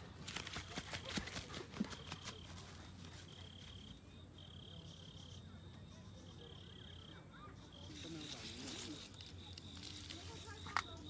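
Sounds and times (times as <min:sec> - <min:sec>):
insect trilling: 0:06.3 - 0:11.0
footsteps on grass: 0:07.9 - 0:11.0.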